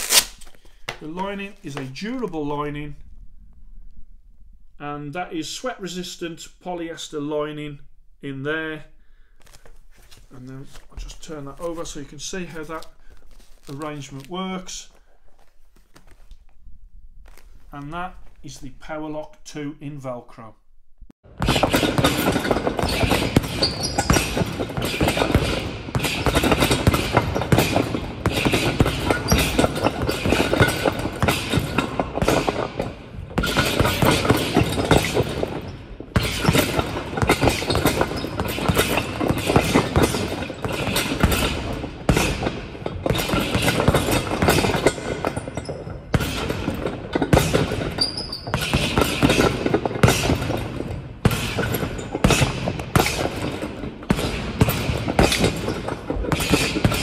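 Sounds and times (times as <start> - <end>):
gloves punching heavy bag: 21.3 - 57.0.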